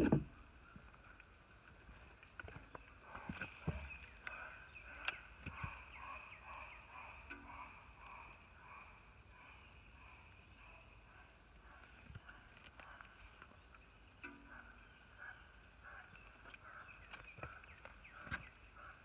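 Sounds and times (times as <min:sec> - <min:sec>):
insect drone: 0:00.0 - 0:19.0.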